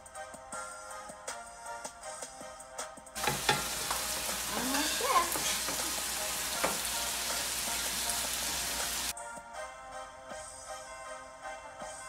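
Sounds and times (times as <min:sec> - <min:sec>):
noodles sizzling on a griddle: 0:03.2 - 0:09.1
spatulas scraping and tapping griddle: 0:03.2 - 0:09.1.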